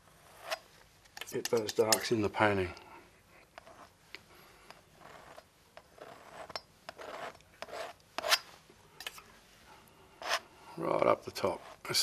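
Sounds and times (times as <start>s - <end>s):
palette knife scraping paint: 0.0s - 2.2s, 3.4s - 9.2s, 10.2s - 10.5s, 11.3s - 12.0s.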